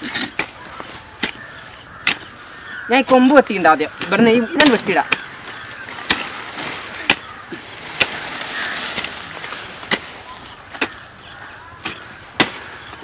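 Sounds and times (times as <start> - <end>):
steel tools chopping stems and soil: 0.0 - 2.4, 3.0 - 5.3, 5.9 - 13.0.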